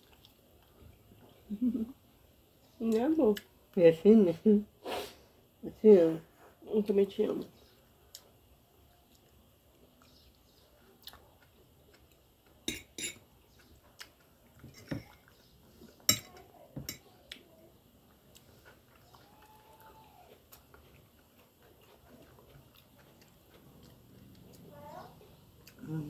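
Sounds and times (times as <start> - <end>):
quiet chewing: 0.0 - 2.0, 7.4 - 26.0
fork clinking on glass plates: 12.7 - 13.2, 16.1 - 17.0.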